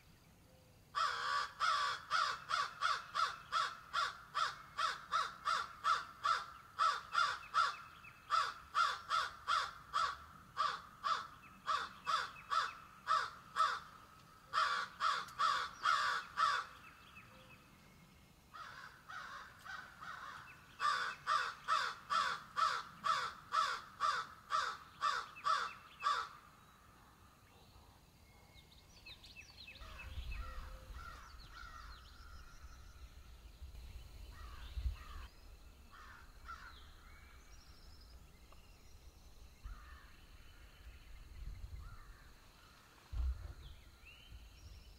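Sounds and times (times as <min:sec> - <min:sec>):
crow cawing: 0:01.0 - 0:13.9, 0:14.5 - 0:16.8, 0:18.5 - 0:26.4, 0:30.4 - 0:31.9, 0:35.9 - 0:36.8.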